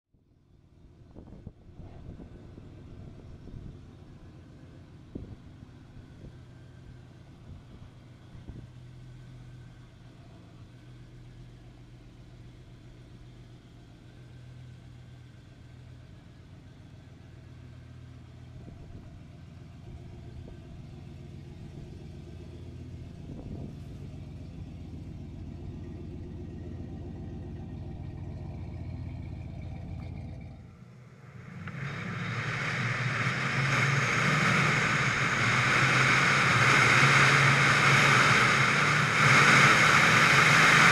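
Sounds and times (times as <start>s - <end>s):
car engine idling: 0.2s - 40.9s
car driving: 0.5s - 16.2s, 16.8s - 40.9s
wind and road rush: 0.7s - 10.0s, 18.4s - 27.2s, 29.7s - 40.9s.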